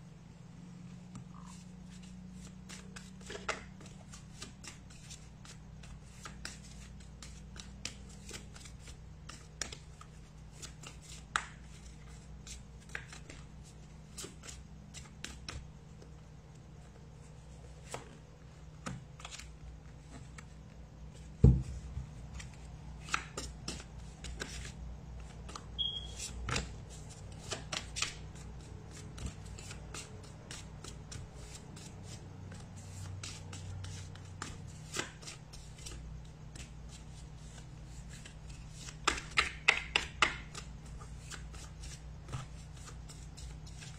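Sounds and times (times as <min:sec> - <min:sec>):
faint low hum: 0:00.0 - 0:43.9
cards shuffling: 0:01.1 - 0:16.2, 0:17.7 - 0:21.3, 0:22.3 - 0:43.9.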